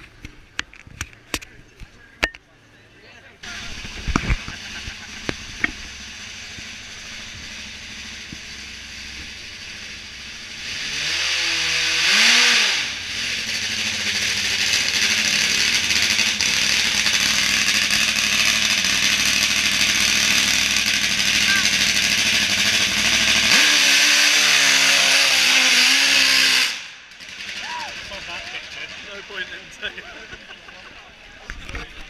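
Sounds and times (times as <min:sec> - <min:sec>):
motorcycle engine starting and revving: 0:03.4 - 0:30.5.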